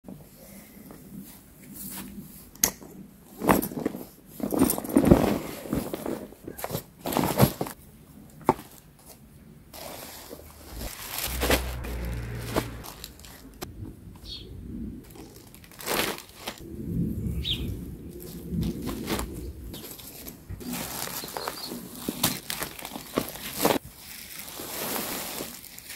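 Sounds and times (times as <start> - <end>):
plastic packaging rustling: 9.8 - 12.4, 15.1 - 16.6, 18.6 - 25.9.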